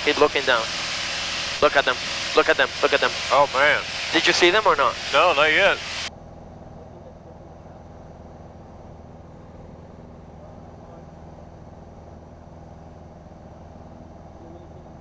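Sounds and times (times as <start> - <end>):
propeller airplane engine droning: 0.0 - 15.0.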